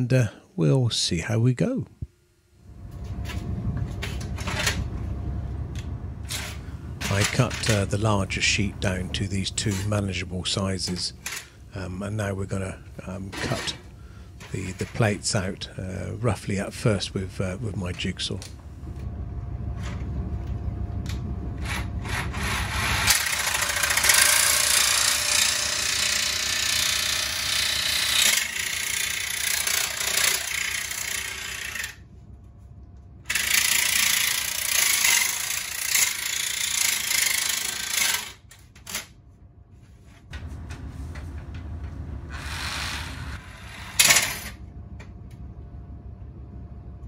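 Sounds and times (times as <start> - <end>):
jigsaw cutting metal sheet: 21.7 - 32.0, 33.3 - 38.4.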